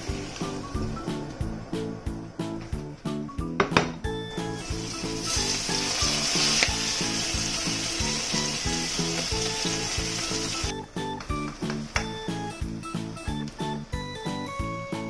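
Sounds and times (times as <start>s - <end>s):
food sizzling in a frying pan: 0.0s - 0.8s, 4.6s - 10.7s
background music with steady beat: 0.0s - 15.0s.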